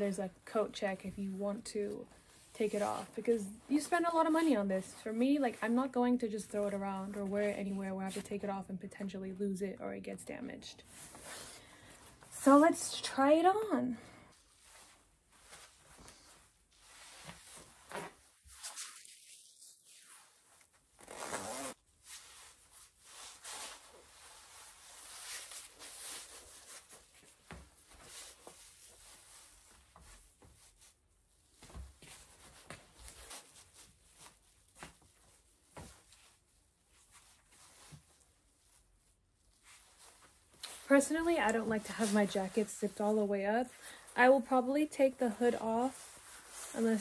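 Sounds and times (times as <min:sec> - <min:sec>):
jacket rustling: 0:00.0 - 0:08.5, 0:10.8 - 0:47.0
jacket zipper zipping: 0:17.8 - 0:21.8.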